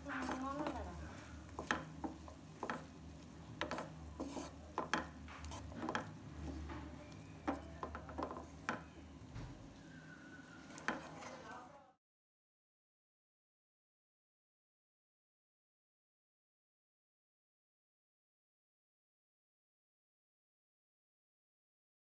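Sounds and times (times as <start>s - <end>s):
spatula scraping a pan: 0.0s - 9.1s, 9.8s - 11.7s
faint sizzle: 0.0s - 12.0s.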